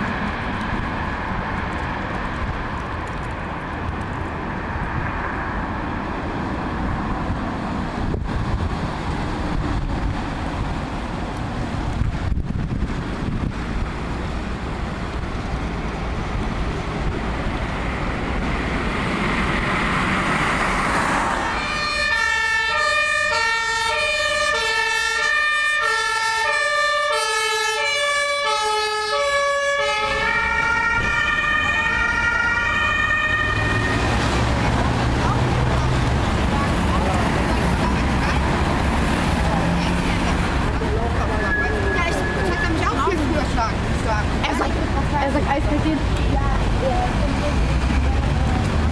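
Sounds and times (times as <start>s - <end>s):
vehicle driving past: 14.5s - 23.2s
two-tone emergency siren: 21.4s - 34.4s, 40.7s - 43.6s.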